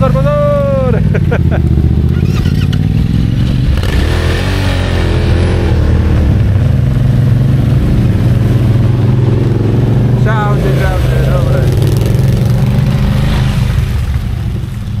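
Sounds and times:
quad bike engines: 0.0 - 15.0.

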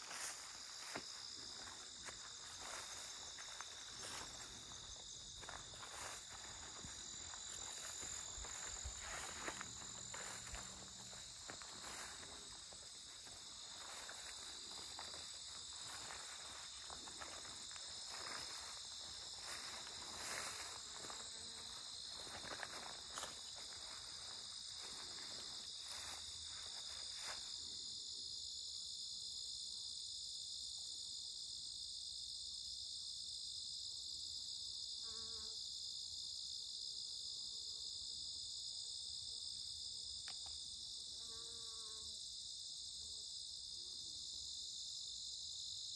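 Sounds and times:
footsteps through tall grass: 0.0 - 28.0
crickets and insects chorus: 0.0 - 45.9.

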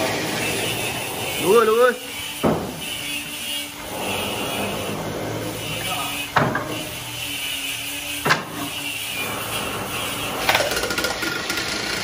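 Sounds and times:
sharp knocks: 2.4 - 2.8.

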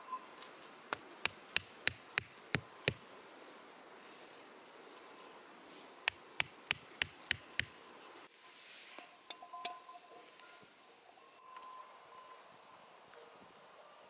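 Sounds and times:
wood striking wooden stakes: 0.4 - 3.0, 6.0 - 7.8.

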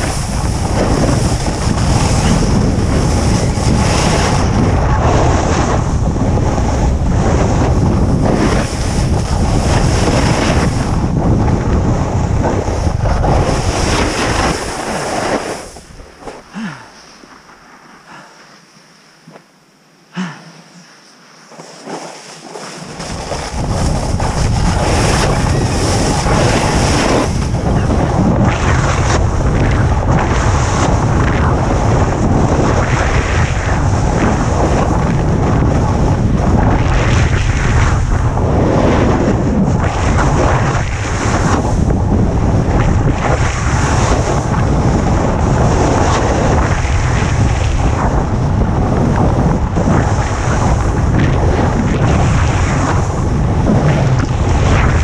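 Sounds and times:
wind rushing over microphone: 0.0 - 18.2, 21.5 - 55.0
ski edges scraping snow: 13.1 - 19.5, 20.6 - 29.2.

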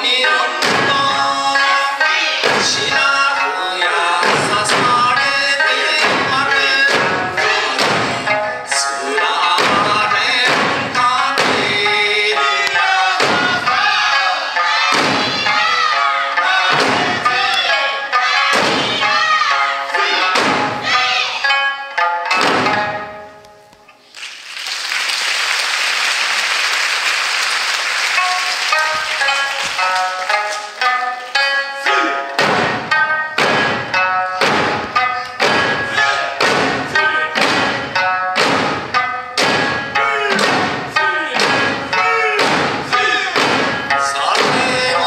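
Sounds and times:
person singing: 0.0 - 21.2, 40.0 - 45.0
lute playing: 0.0 - 24.1, 28.0 - 45.0
drums struck in time: 0.4 - 1.6, 2.3 - 3.3, 4.1 - 17.7, 18.4 - 21.2, 22.0 - 23.4, 32.3 - 45.0.

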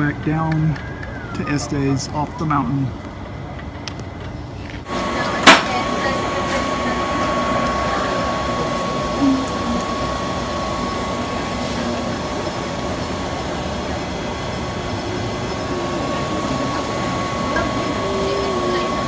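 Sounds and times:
electric motor rumble and whine: 0.0 - 19.0.

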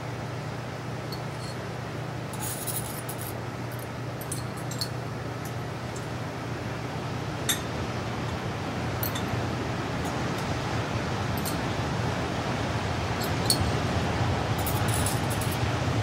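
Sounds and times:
steady low hum: 0.0 - 16.0
glassware clinking and rubbing: 2.3 - 3.4, 13.2 - 13.8, 14.6 - 15.6.

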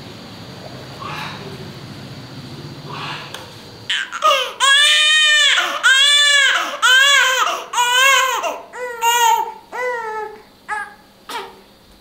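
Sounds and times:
infant crying: 3.9 - 11.6.

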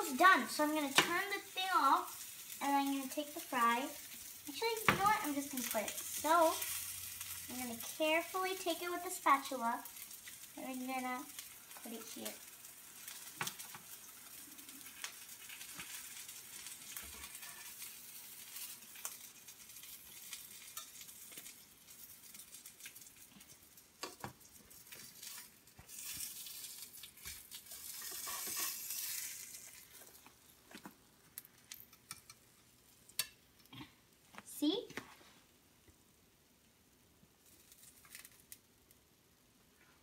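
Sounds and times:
oil sizzling in a frying pan: 0.0 - 35.6, 36.2 - 40.0
spatula scraping and tapping: 27.2 - 29.2.

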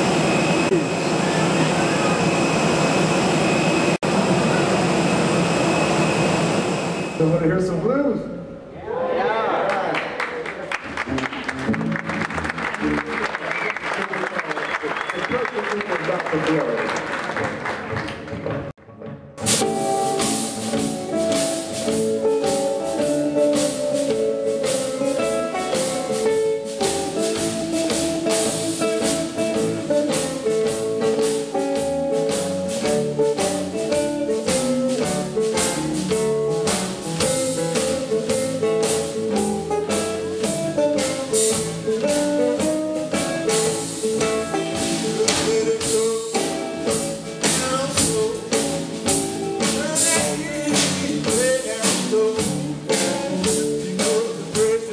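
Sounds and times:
electric guitar lines: 10.8 - 14.0, 18.4 - 54.9
live blues band playing: 10.8 - 14.0, 17.3 - 54.9
steady cymbal beat: 19.4 - 54.9.

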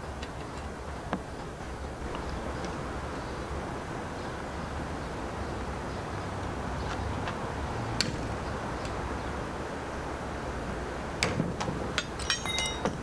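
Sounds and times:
metallic clicks and clinks of tools: 12.0 - 13.0.

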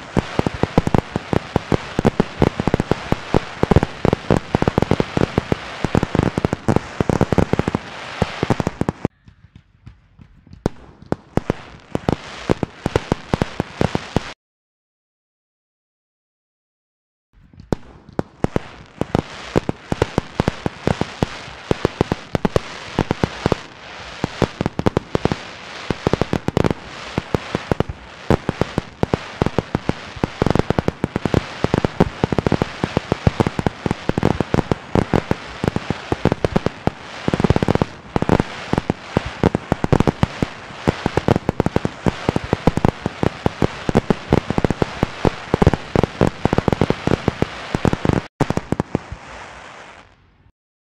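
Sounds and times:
fireworks bangs and crackling: 0.0 - 14.4, 17.4 - 50.5.

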